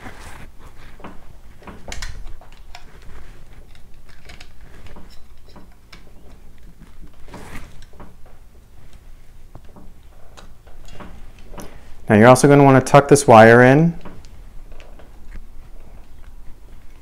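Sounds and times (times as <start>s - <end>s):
rustling: 0.0s - 12.2s.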